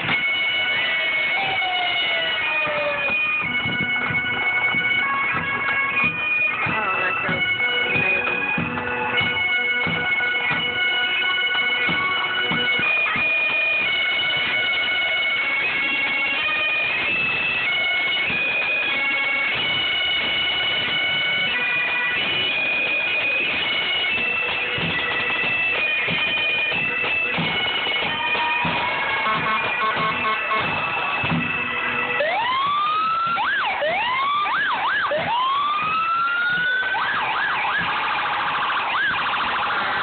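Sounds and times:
bagpipes playing a marching tune: 0:00.0 - 0:40.0
drum beats: 0:00.0 - 0:40.0
siren winding down: 0:00.8 - 0:03.1, 0:32.2 - 0:40.0.

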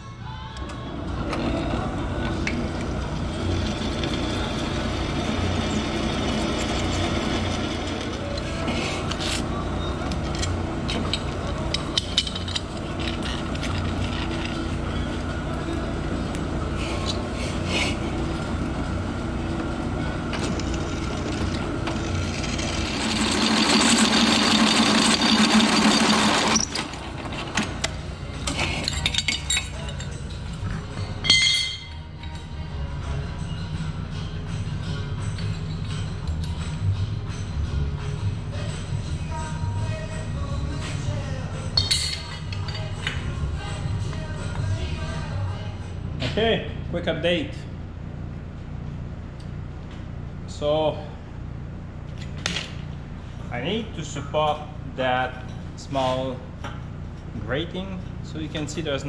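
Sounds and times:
drill press running: 0:00.9 - 0:29.2.

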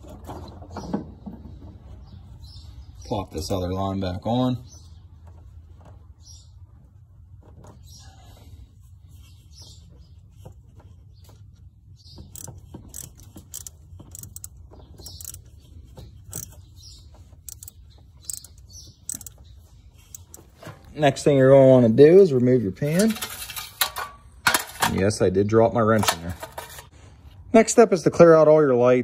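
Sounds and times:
hand tool clicking and scraping metal: 0:12.2 - 0:15.5, 0:16.2 - 0:19.4, 0:20.0 - 0:21.0, 0:22.9 - 0:25.1, 0:25.9 - 0:26.9.

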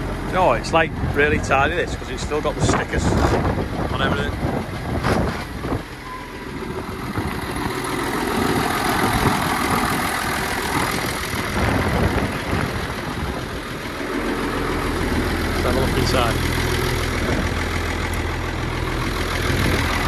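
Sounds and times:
tractor diesel engine idling: 0:00.0 - 0:20.0
wind on microphone: 0:02.6 - 0:05.9, 0:10.7 - 0:13.9.

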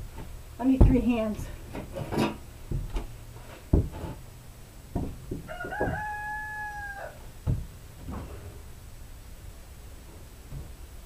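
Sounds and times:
handling knocks and thumps: 0:00.0 - 0:06.2, 0:07.3 - 0:08.7, 0:10.3 - 0:11.0
rooster crowing: 0:05.4 - 0:07.3.

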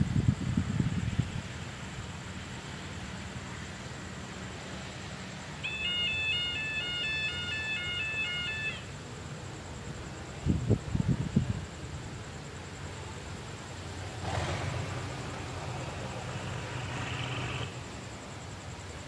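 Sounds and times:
locomotive humming: 0:01.7 - 0:09.8, 0:12.5 - 0:19.0.

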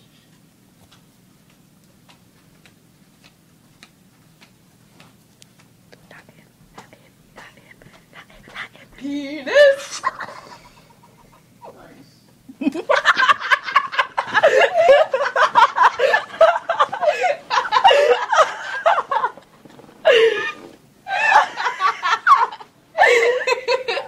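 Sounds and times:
women laughing: 0:09.1 - 0:11.4, 0:12.5 - 0:19.4, 0:20.0 - 0:24.0.

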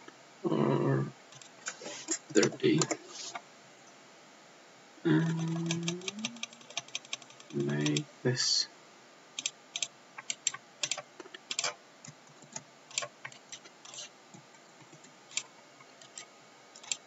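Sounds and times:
computer keyboard keys clicking: 0:05.2 - 0:08.0, 0:09.4 - 0:14.0, 0:16.8 - 0:17.0.

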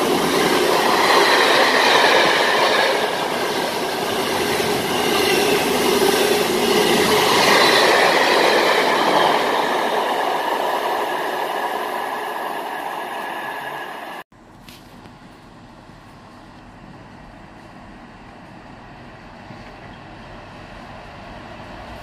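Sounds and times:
train coaches rushing by: 0:00.0 - 0:14.2.

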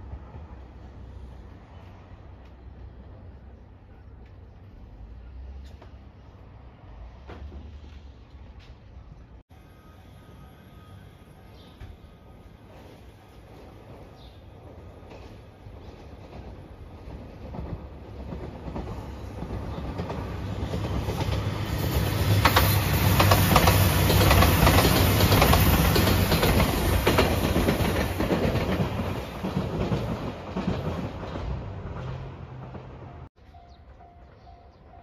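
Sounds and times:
train engine rumble: 0:00.0 - 0:35.0
wheels clacking over rail joints: 0:12.7 - 0:33.3.

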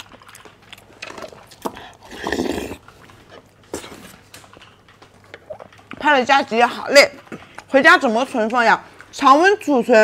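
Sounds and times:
person slurping yogurt: 0:01.6 - 0:02.9.

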